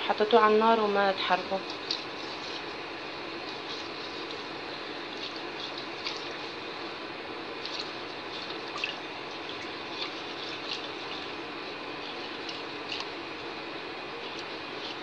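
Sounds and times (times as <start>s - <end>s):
whisk stirring liquid in pot: 1.6s - 6.7s, 7.6s - 13.5s.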